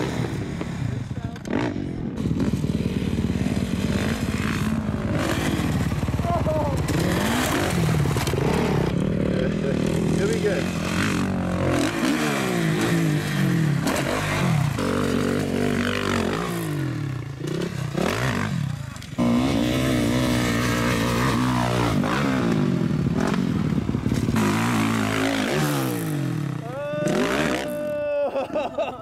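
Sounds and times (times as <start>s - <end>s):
dirt bike engines revving: 0.0s - 29.0s.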